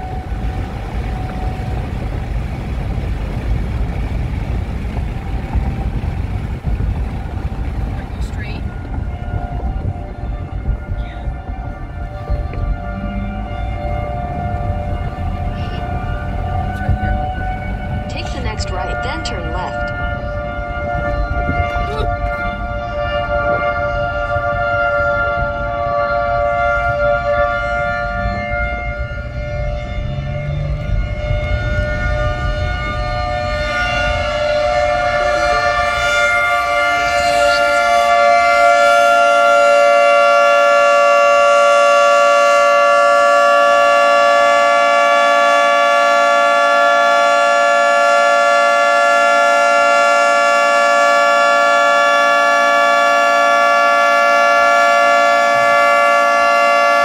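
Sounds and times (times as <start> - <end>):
car road and engine noise: 0.0 - 41.4
two-tone warning siren: 0.0 - 57.0.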